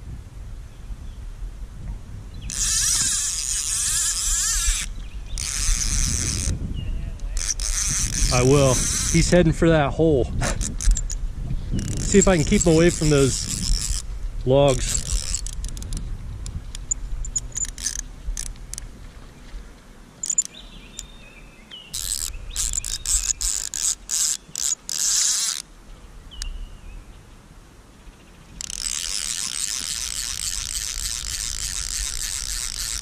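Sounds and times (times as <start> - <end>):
fly reel clicking: 2.5 - 6.6, 7.2 - 9.4, 10.4 - 11.2, 11.8 - 18.9, 20.2 - 21.1, 21.9 - 25.7, 28.6 - 33.0.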